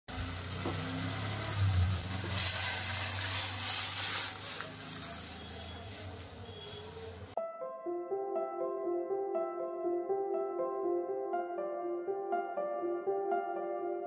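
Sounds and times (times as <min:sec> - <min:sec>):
lentils bubbling: 0:00.1 - 0:07.4
oil sizzling in a wok: 0:00.1 - 0:07.4.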